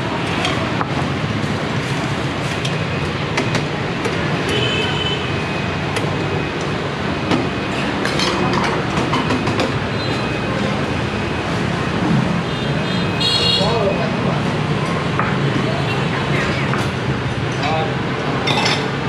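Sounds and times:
utensils clinking on bowls and pots: 7.8s - 9.5s, 18.4s - 19.0s.

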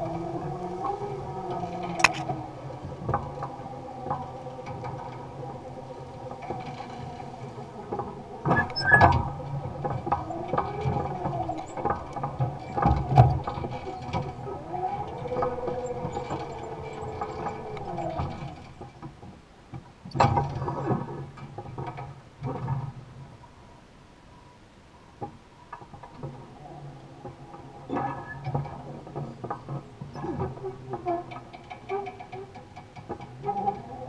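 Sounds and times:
weeder rattling and clicking: 0.0s - 19.2s.

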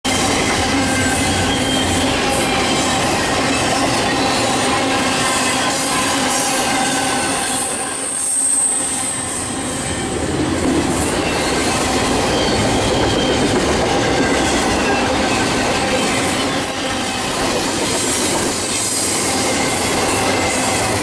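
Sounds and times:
train wheels rumbling on rail: 0.1s - 21.0s
wheels singing high tones: 0.1s - 21.0s
thin high squeal: 0.2s - 10.2s.

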